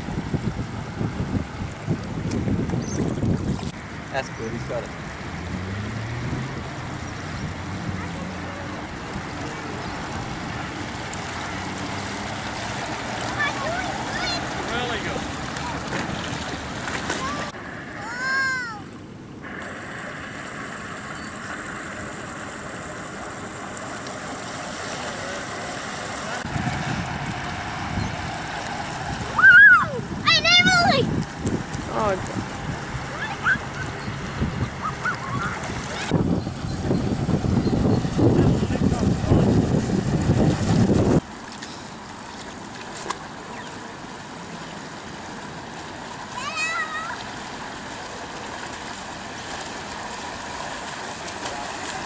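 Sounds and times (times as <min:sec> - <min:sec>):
steady wind rush: 0:00.0 - 0:04.3, 0:17.3 - 0:23.7, 0:25.9 - 0:41.3
wind buffeting microphone: 0:00.0 - 0:22.4, 0:26.4 - 0:41.4
motor droning with faint whine: 0:18.9 - 0:29.4.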